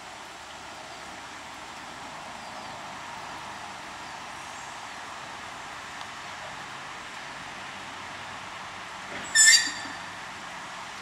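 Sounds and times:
diesel railbus idling: 5.3s - 11.0s.

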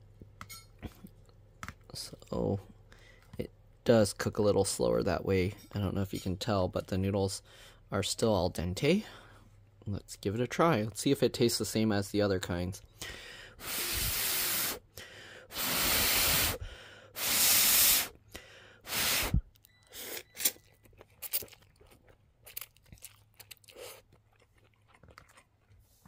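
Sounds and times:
chewing with small clicks: 19.5s - 26.0s.

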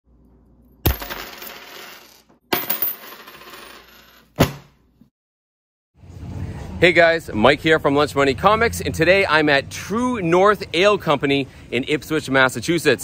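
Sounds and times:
coins dropping and rattling: 0.8s - 4.4s.

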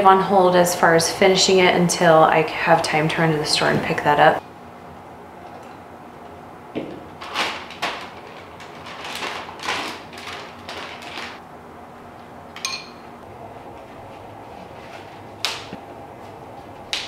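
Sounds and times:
metal spoon clinking bowl: 12.6s - 13.1s.

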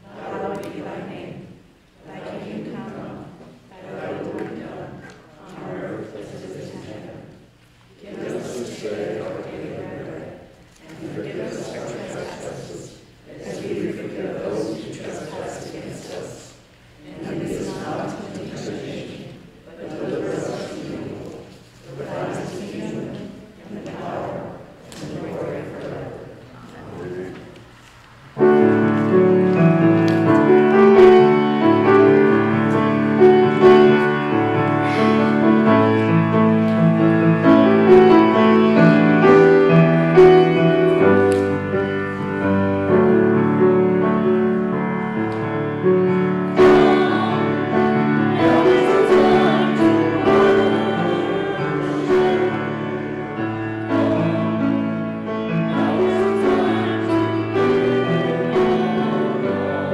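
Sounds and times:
group of voices singing: 0.0s - 27.5s, 28.4s - 59.9s
grand piano playing: 28.2s - 59.9s.

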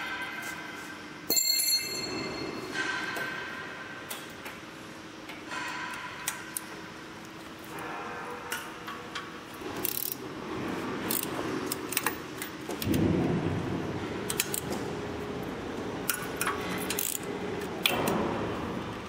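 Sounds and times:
steady low rumbling: 12.8s - 16.1s.

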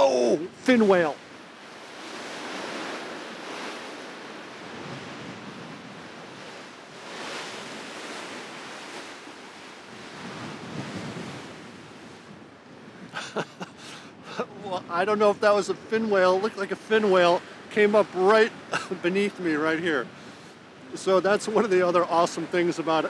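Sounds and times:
wind on microphone: 0.0s - 15.0s
sea washing along ship: 0.0s - 23.0s.

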